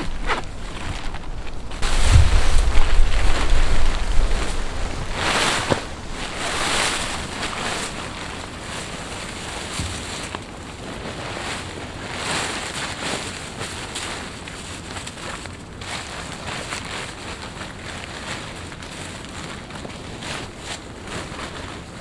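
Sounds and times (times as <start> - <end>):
wind buffeting microphone: 0.0 - 10.7
heavy rumble: 0.0 - 13.4
fabric and foil rustling: 0.0 - 22.0.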